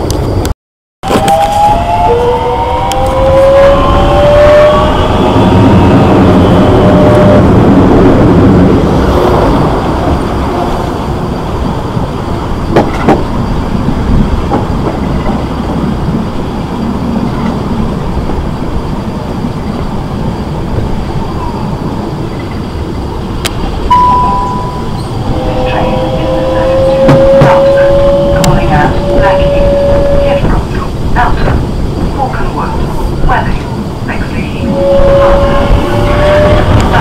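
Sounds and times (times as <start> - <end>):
electric train running: 23.5 - 37.0
short high steady tone: 23.9 - 30.2.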